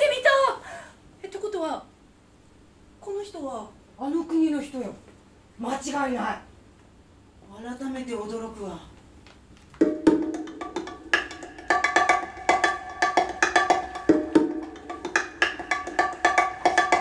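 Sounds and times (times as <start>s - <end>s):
struck percussion with ringing notes: 9.8s - 17.0s.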